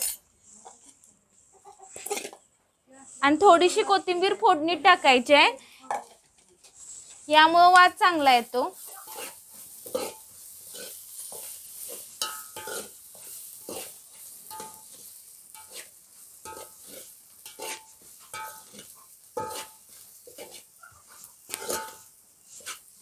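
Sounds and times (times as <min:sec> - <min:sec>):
food sizzling in hot oil: 0:00.0 - 0:00.6, 0:03.1 - 0:23.0
metal ladle scraping a pot: 0:01.9 - 0:02.4, 0:08.8 - 0:20.7, 0:21.5 - 0:22.9.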